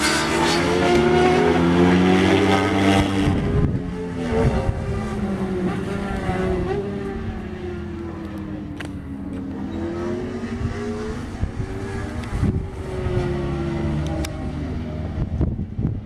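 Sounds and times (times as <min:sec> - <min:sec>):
distant motorcycle engine revving: 0:00.0 - 0:16.0.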